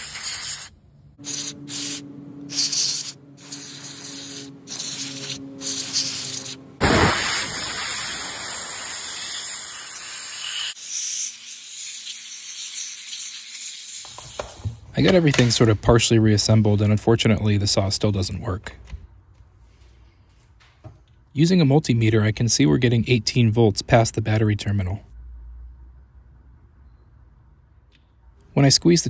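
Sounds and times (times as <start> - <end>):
aerosol spray hissing: 0.0 - 14.6.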